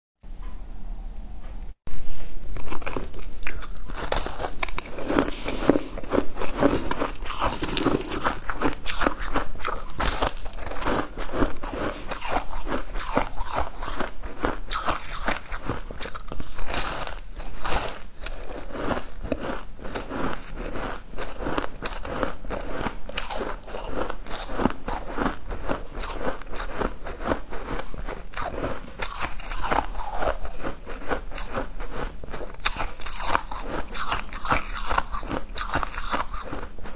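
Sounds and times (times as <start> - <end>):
crunchy cake chewing: 2.6 - 36.9.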